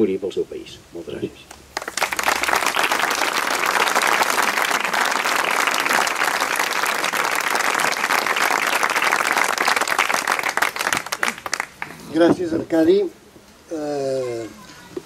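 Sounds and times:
audience applauding: 0:01.8 - 0:12.0.

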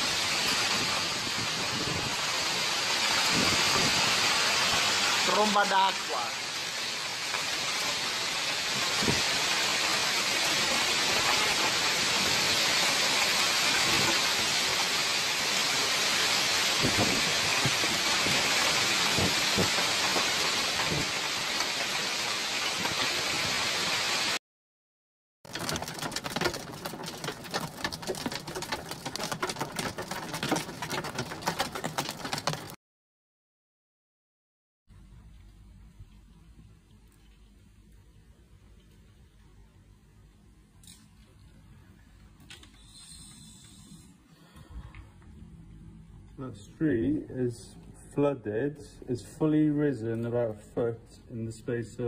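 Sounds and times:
floodwater rushing along street: 0:00.0 - 0:24.4, 0:25.5 - 0:32.8
torrential rain and hail: 0:00.0 - 0:24.4, 0:25.5 - 0:32.8.

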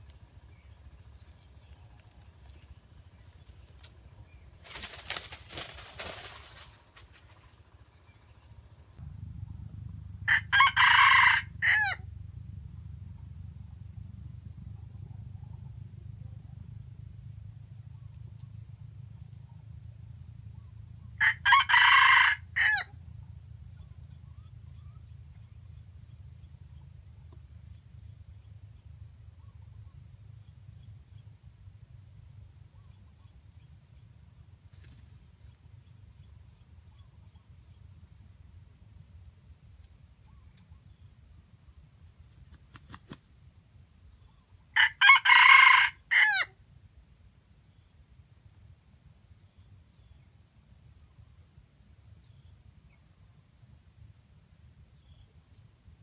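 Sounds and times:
rooster crowing: 0:10.3 - 0:12.0, 0:21.2 - 0:22.9, 0:44.8 - 0:46.6.

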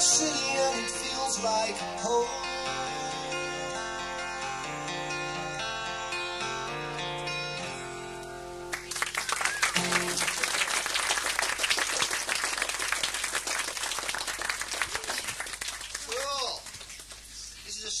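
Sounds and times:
guitar chord ringing: 0:00.0 - 0:09.0, 0:09.8 - 0:10.4
audience applause: 0:08.7 - 0:17.6.

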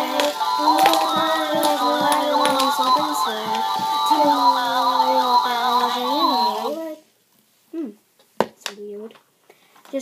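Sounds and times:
steady beat: 0:00.0 - 0:06.6.

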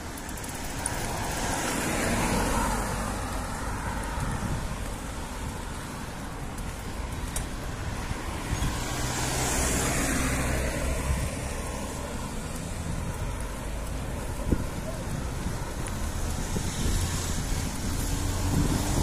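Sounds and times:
traffic rumble: 0:00.0 - 0:19.0
vehicle passing close: 0:07.8 - 0:19.0.

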